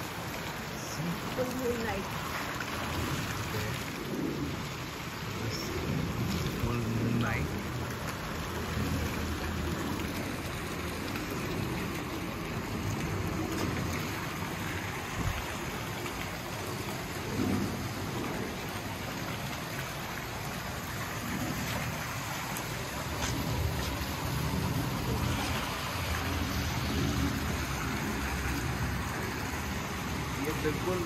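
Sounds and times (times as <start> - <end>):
water jets splashing into pool: 0.0 - 31.0
waterfall falling into pool: 0.0 - 31.0.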